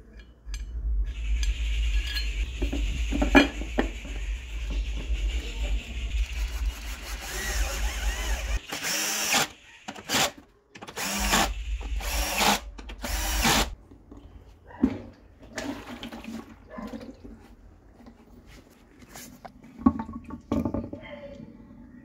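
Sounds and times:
cordless drill bursts: 0:06.8 - 0:13.8.

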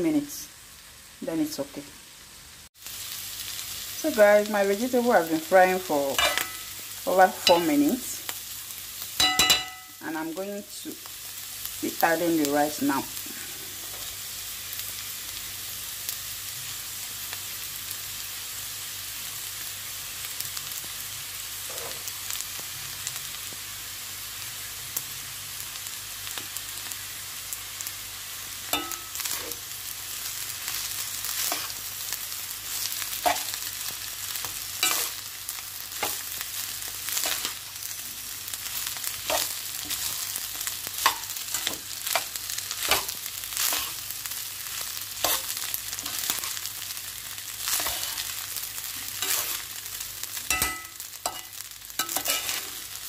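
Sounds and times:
oil sizzling in a frying pan: 0:00.0 - 0:53.0
metal spoon scraping a pan: 0:06.1 - 0:07.8, 0:21.6 - 0:22.1, 0:28.7 - 0:29.6, 0:30.7 - 0:31.9, 0:32.7 - 0:35.3, 0:35.9 - 0:37.7, 0:39.0 - 0:44.1, 0:44.7 - 0:46.7, 0:47.6 - 0:49.8, 0:50.4 - 0:53.0.

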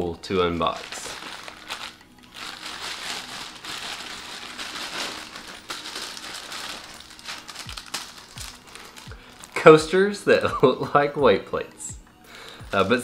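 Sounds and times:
plastic wrapping crinkling: 0:00.6 - 0:10.1.

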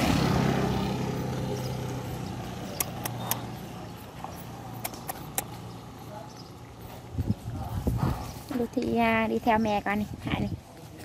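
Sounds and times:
vehicle passing with low hum: 0:00.0 - 0:08.8
sharp clicks: 0:02.6 - 0:03.7, 0:04.7 - 0:05.7.

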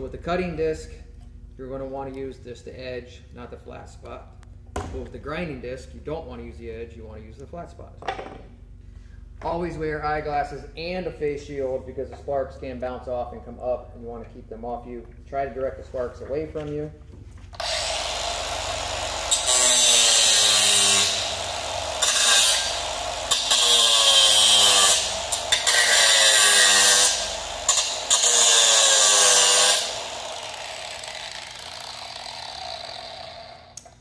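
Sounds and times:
angle grinder grinding: 0:17.5 - 0:34.0.

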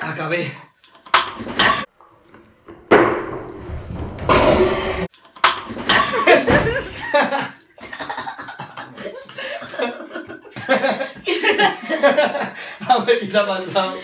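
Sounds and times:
man laughing hard: 0:06.0 - 0:13.0.

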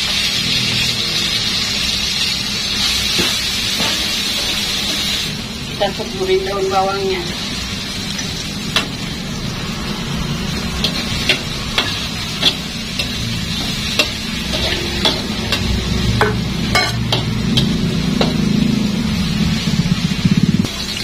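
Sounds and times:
frying sizzle: 0:00.0 - 0:21.0
metal spatula scraping wok: 0:09.7 - 0:18.6.

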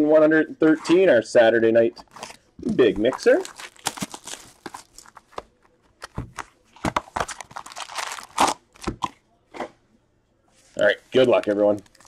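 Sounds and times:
card packaging tearing and crinkling: 0:03.0 - 0:05.4, 0:06.8 - 0:08.9, 0:11.5 - 0:12.0.

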